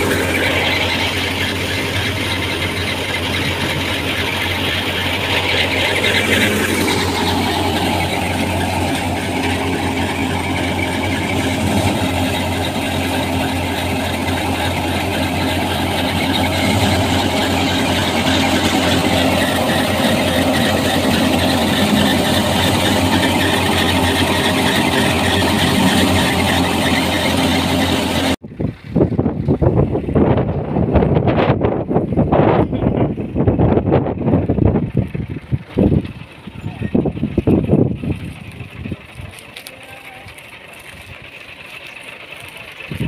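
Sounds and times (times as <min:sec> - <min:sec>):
wheat thresher running: 0:00.0 - 0:31.2, 0:33.1 - 0:43.0
low engine hum: 0:00.0 - 0:43.0
wind buffeting microphone: 0:28.4 - 0:39.5, 0:42.8 - 0:43.0.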